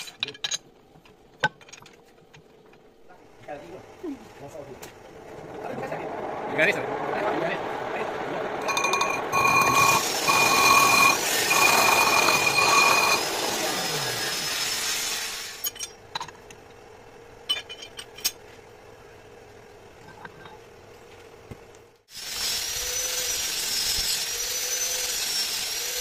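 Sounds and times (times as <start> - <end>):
metal lathe running: 6.2 - 15.4
high-pitched cutting tool squeal: 8.6 - 15.5, 22.4 - 26.0.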